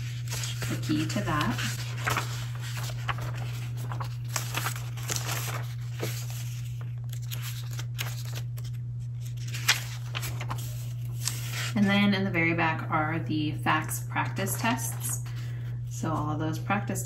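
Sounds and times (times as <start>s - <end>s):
book pages turning: 0.0s - 11.8s
steady low hum: 0.0s - 17.0s.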